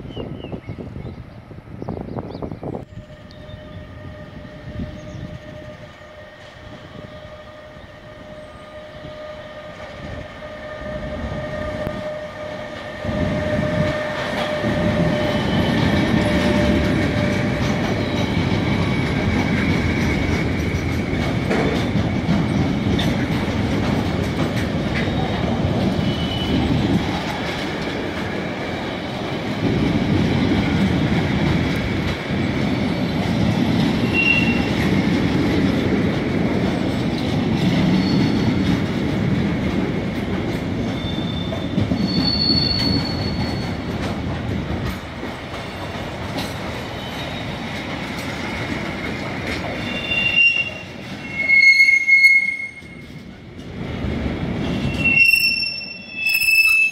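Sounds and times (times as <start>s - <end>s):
electric locomotive whine: 0.3s - 56.9s
wheels clicking over rail joints: 12.0s - 51.5s.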